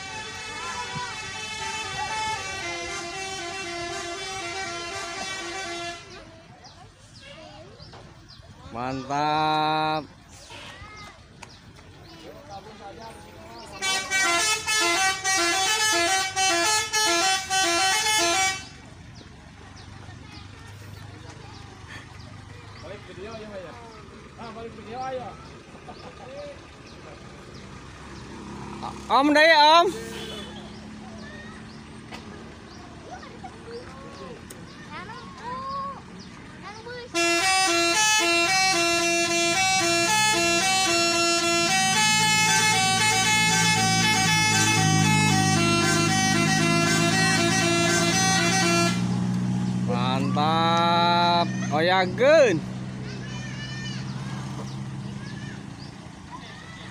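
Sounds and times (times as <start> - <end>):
melodic bus air horn: 0.0 - 6.3, 13.6 - 18.8, 29.6 - 30.9, 37.1 - 51.6.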